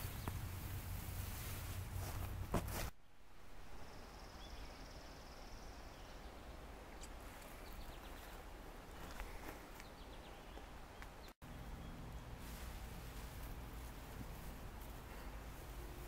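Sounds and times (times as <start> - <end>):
rustle in tall grass: 0.0 - 3.0, 11.4 - 16.0.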